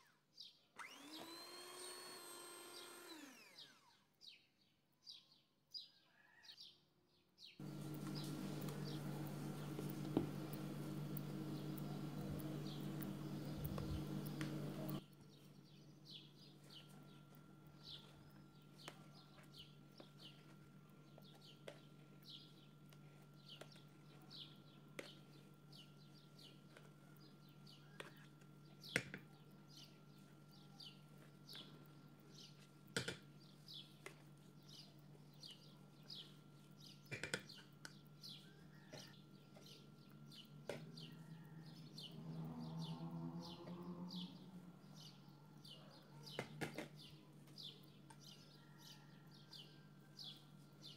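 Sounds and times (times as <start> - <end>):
electric hand mixer running: 0.8 - 4.1, 7.6 - 15.0.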